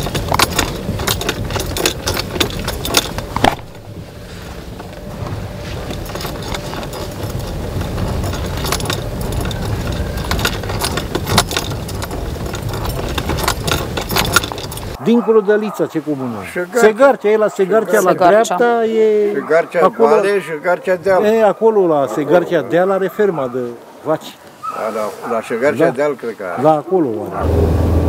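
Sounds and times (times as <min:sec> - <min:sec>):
car knocking and rattling: 0:00.0 - 0:15.0
car rumble on dirt road: 0:00.0 - 0:15.0, 0:27.3 - 0:28.0.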